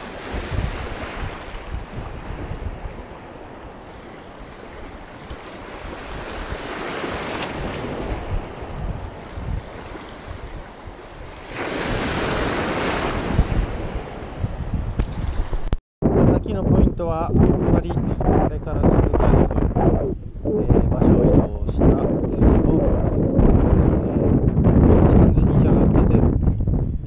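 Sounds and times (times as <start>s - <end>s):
small waves washing over reef: 0.0s - 15.8s
wind buffeting microphone: 0.0s - 27.0s.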